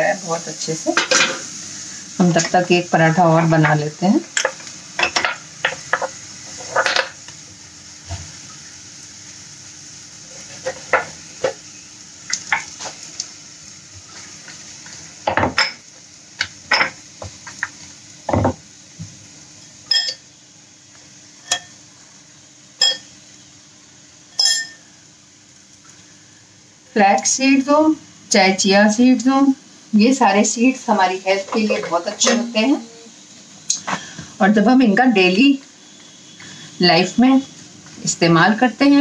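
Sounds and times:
soft sizzle of frying: 0:00.0 - 0:39.0
metal utensils clinking: 0:19.9 - 0:20.2, 0:24.4 - 0:24.8.

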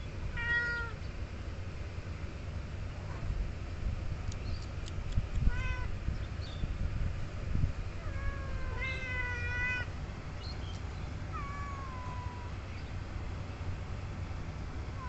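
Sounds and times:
cat meowing: 0:00.3 - 0:01.0, 0:05.5 - 0:05.9, 0:08.0 - 0:09.9, 0:11.3 - 0:12.6.

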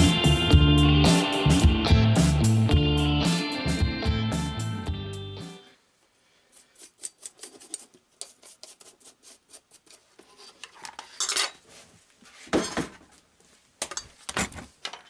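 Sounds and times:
scrape on workbench: 0:06.5 - 0:13.0.

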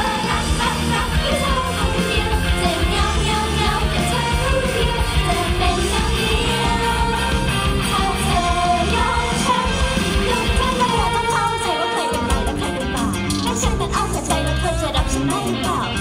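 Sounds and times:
women singing together: 0:00.0 - 0:12.7
pop backing music with beat: 0:00.0 - 0:16.0.

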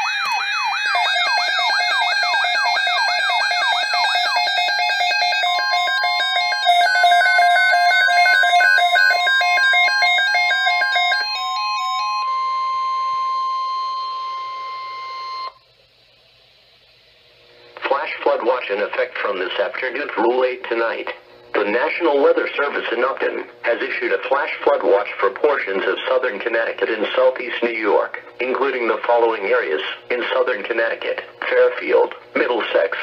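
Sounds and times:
steady alert tone: 0:00.0 - 0:15.5
warbling alarm siren: 0:00.0 - 0:15.6.

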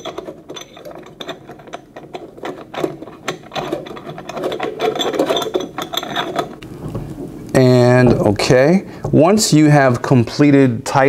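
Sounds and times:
metal screw clicking and scraping: 0:00.0 - 0:06.7.

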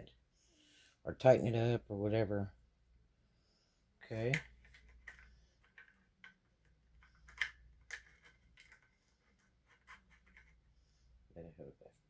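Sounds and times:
tripod head clicks and rattles: 0:07.0 - 0:08.9.

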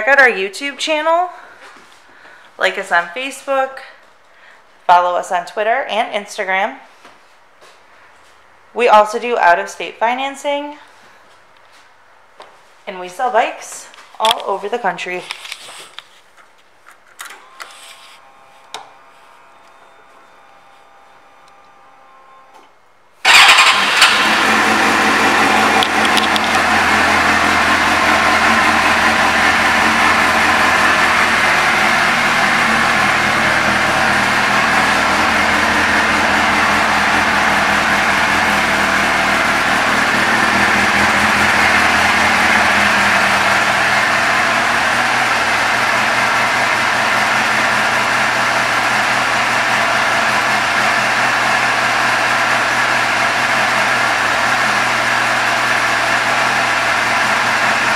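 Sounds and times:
motorcycle engine starting and idling: 0:23.2 - 0:57.9.

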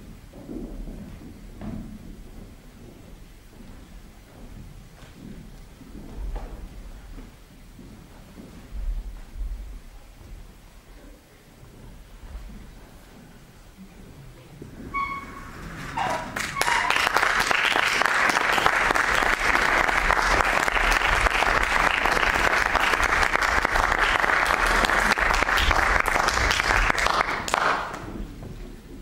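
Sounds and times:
audience applauding: 0:15.6 - 0:28.2.

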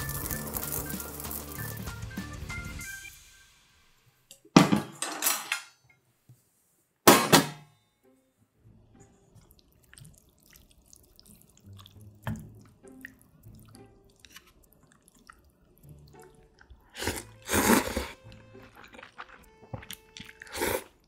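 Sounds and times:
loud slurp of noodles: 0:16.2 - 0:21.0.

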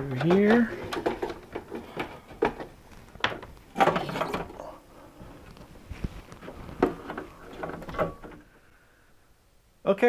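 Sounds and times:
clicks and knocks: 0:00.0 - 0:04.6.

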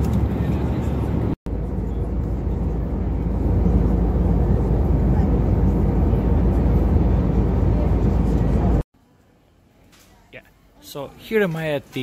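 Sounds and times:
airplane cabin noise: 0:00.0 - 0:08.9.

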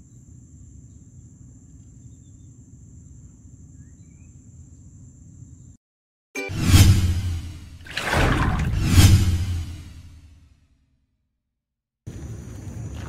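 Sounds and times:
music: 0:06.4 - 0:07.4
loud whoosh: 0:06.5 - 0:10.3.

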